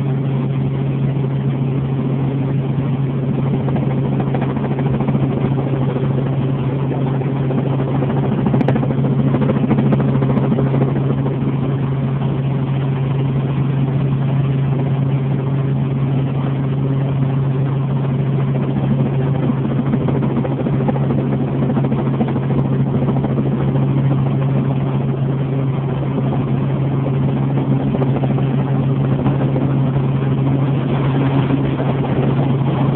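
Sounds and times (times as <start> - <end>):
helicopter engine and rotor drone: 0.0 - 32.9.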